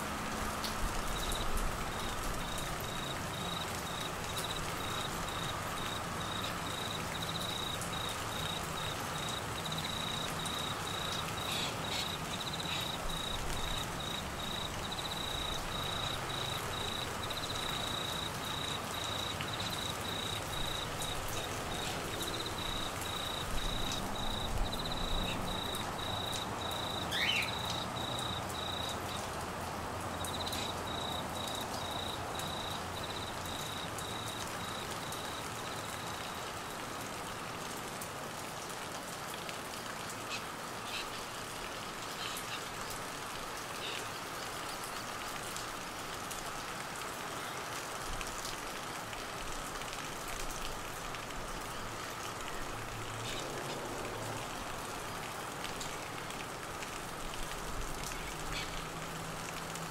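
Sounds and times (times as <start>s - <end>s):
steady rain: 0.0s - 59.9s
insect trilling: 2.4s - 29.0s
short high chirping calls: 27.1s - 27.7s.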